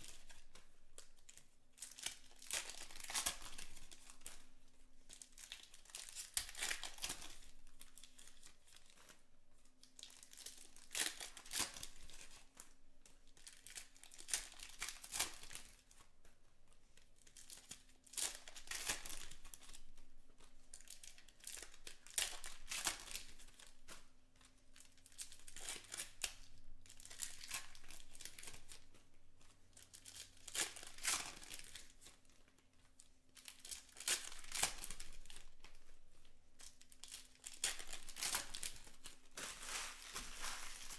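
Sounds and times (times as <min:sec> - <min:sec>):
foil wrappers tearing and crinkling: 0:01.8 - 0:04.4, 0:05.2 - 0:08.9, 0:10.0 - 0:12.4, 0:13.4 - 0:15.8, 0:17.4 - 0:19.8, 0:20.8 - 0:23.7, 0:24.8 - 0:28.8, 0:29.9 - 0:32.0, 0:33.4 - 0:35.8, 0:36.6 - 0:40.9.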